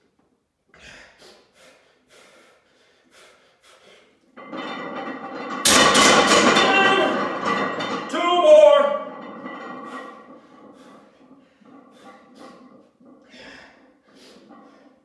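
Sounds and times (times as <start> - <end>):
man breathing hard: 0.7 - 4.2, 13.2 - 15.0.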